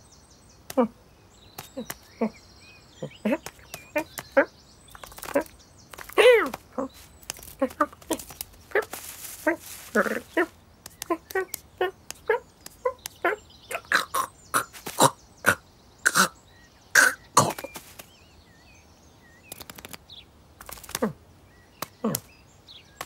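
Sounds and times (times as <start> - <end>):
rustling: 3.4 - 13.2, 17.4 - 18.2
person voicing cat chirps and mews: 6.1 - 16.3
small clicks: 10.8 - 13.2, 19.5 - 21.1.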